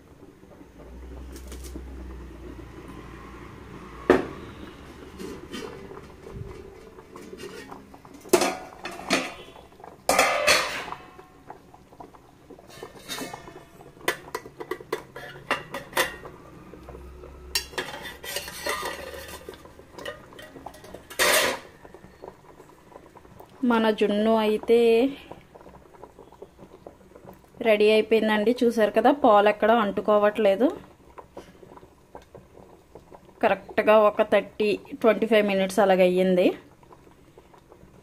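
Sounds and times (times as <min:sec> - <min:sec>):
metal lids and plates clanking: 0:05.2 - 0:11.2, 0:12.7 - 0:16.3, 0:17.5 - 0:21.7.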